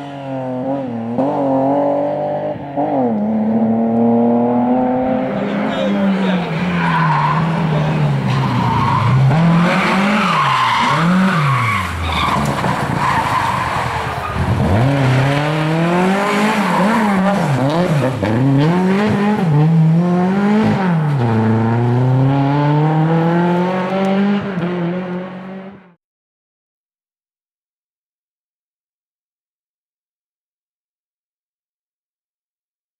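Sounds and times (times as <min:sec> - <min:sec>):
rally car engines revving: 0:00.0 - 0:26.0.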